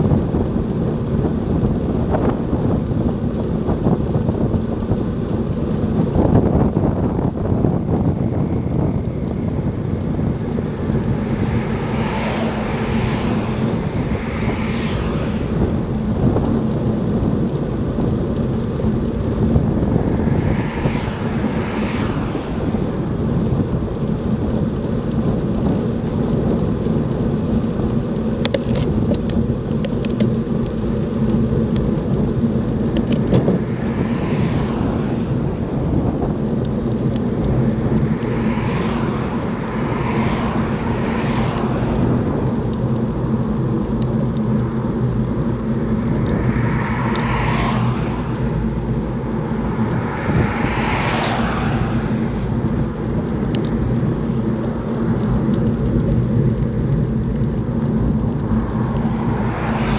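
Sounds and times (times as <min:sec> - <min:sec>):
vehicles passing: 0:00.0 - 0:59.9
wind rush on microphone: 0:00.0 - 0:59.9.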